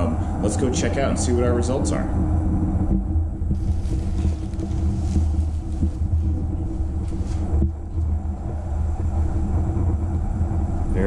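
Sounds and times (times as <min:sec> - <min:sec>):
exhaust fan rumble and hum: 0:00.0 - 0:11.0
plastic sheeting rustling: 0:03.5 - 0:08.4.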